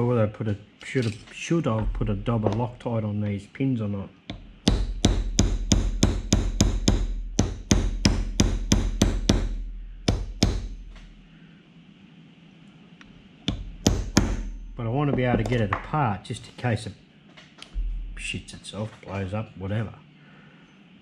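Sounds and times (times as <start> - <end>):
hammer tapping metal punch: 4.3 - 11.2, 13.4 - 16.0.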